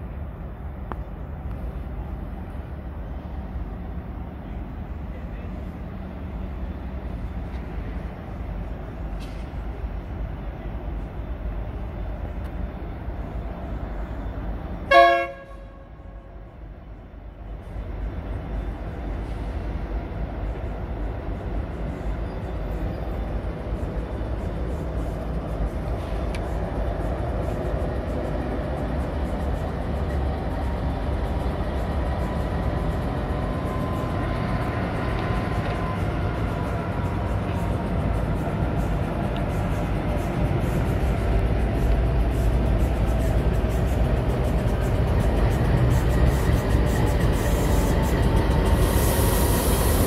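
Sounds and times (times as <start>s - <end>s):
diesel locomotive passing: 0.0s - 50.0s
train rumbling: 0.0s - 50.0s
train horn blast: 14.8s - 16.5s.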